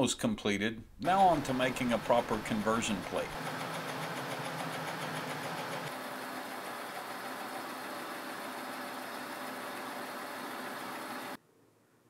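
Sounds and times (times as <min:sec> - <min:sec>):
milling machine whirring: 0:01.0 - 0:11.4.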